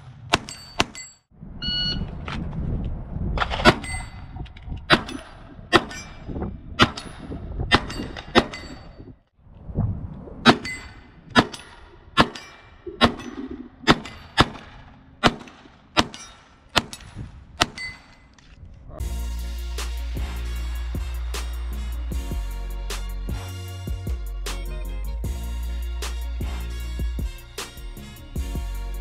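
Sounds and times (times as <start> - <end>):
pistol shots: 12.2 - 18.1
music with drum beat: 19.0 - 29.0.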